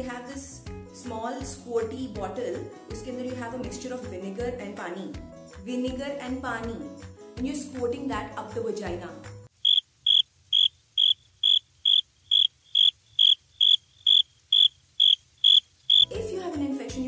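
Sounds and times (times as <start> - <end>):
cricket chirping: 9.5 - 16.1.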